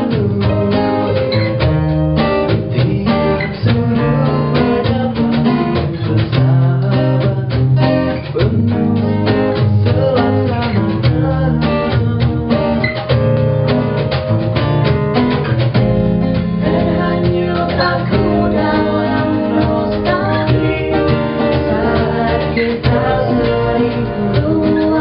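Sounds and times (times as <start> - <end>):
man singing: 0.0 - 13.2, 16.6 - 25.0
bass: 0.0 - 25.0
cajon beat: 0.0 - 25.0
keyboard: 0.0 - 25.0
strummed acoustic guitar: 0.0 - 25.0
woman singing: 16.6 - 25.0.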